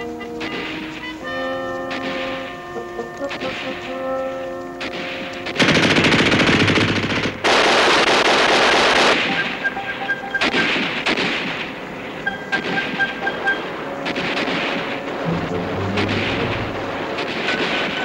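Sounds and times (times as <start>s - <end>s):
scattered distant gunfire: 4.8s - 15.3s
machine-gun fire: 5.2s - 11.9s, 14.0s - 18.0s.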